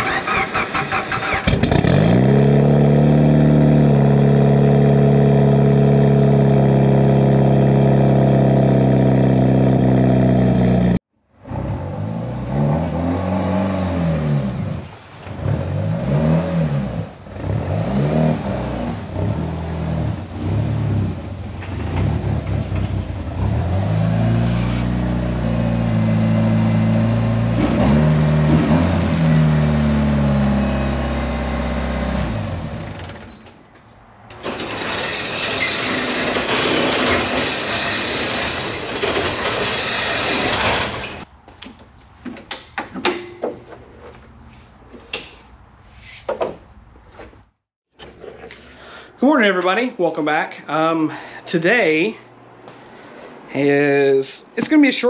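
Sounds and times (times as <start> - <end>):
engine cranking: 0.0 - 2.0, 34.3 - 41.3
car engine revving while driving: 1.4 - 21.2, 21.9 - 32.9.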